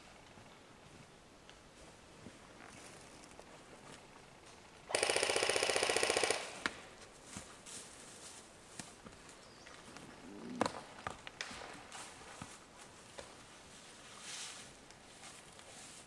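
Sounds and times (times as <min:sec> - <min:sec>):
airsoft rifle full-auto burst: 0:04.9 - 0:06.8.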